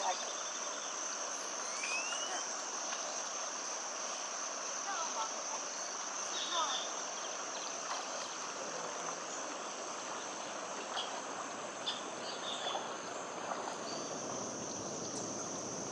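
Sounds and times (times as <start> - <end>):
high-pitched insect drone: 0.0 - 7.8.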